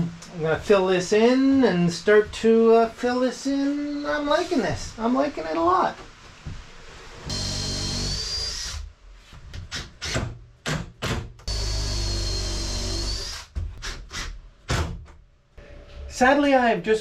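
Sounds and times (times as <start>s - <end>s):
power drill whining: 7.3s - 8.8s, 11.5s - 13.5s.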